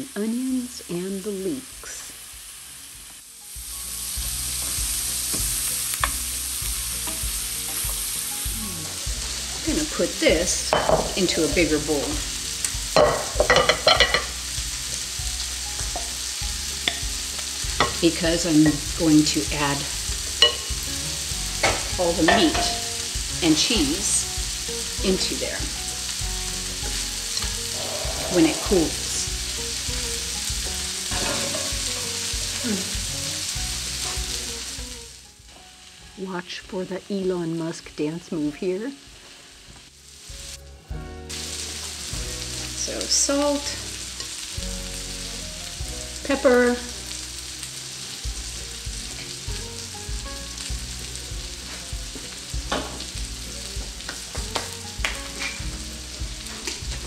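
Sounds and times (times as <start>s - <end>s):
onions sizzling in a frying pan: 0.0s - 57.0s
steady kitchen hiss: 0.0s - 57.0s.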